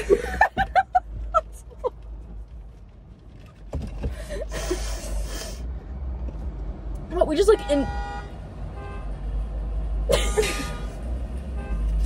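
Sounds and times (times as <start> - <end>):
women laughing: 0.0 - 2.0.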